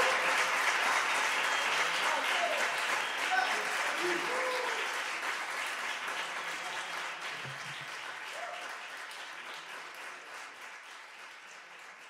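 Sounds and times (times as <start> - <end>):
audience applauding: 0.0 - 12.0
voices from crowd: 1.6 - 5.0.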